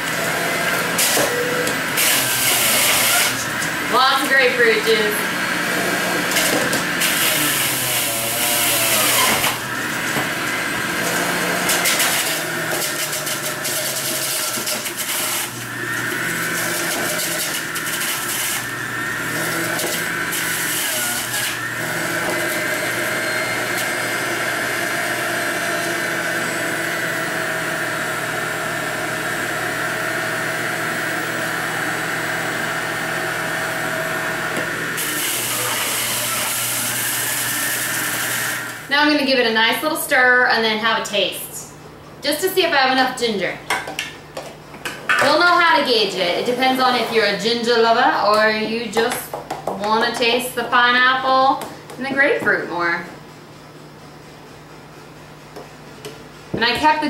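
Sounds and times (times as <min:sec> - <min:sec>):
fruit shredding grinding bursts: 0:00.0 - 0:38.9
juicer motor humming: 0:00.0 - 0:39.5.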